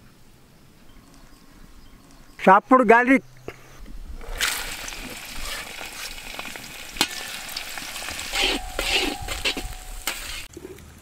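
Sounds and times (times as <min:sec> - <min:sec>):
garlic sizzling in oil: 0:04.2 - 0:10.5
metal skimmer scraping wok: 0:04.2 - 0:10.5.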